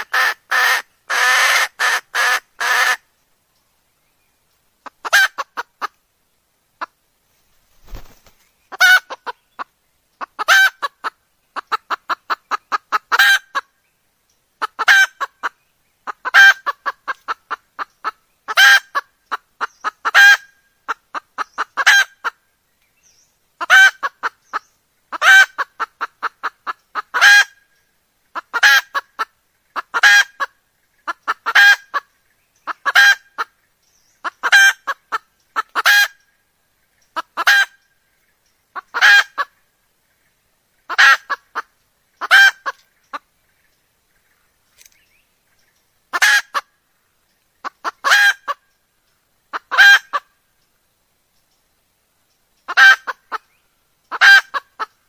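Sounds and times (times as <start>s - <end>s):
hen cackling and squawking: 0.0s - 3.1s, 4.8s - 6.0s, 7.8s - 13.8s, 14.6s - 22.4s, 23.6s - 27.7s, 28.3s - 33.6s, 34.2s - 36.3s, 37.0s - 37.9s, 38.7s - 39.7s, 40.8s - 43.3s, 46.1s - 46.8s, 47.6s - 48.7s, 49.5s - 50.4s, 52.6s - 55.0s.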